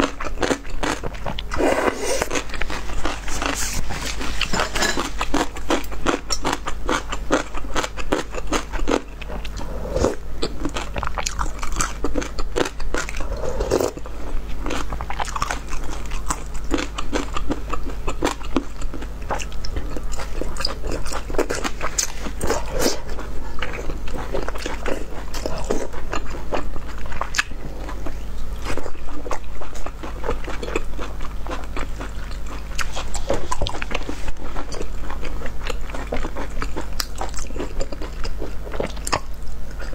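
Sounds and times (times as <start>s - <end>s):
person chewing food: 0.0s - 39.9s
low hum: 9.1s - 12.5s.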